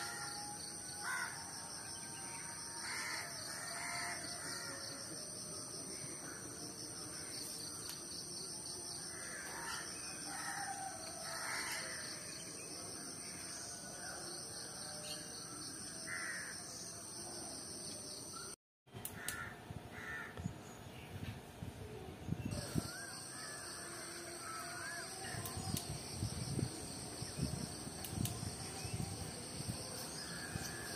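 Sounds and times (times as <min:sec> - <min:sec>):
crows cawing: 0:19.2 - 0:20.3
steady high hiss: 0:22.6 - 0:30.9.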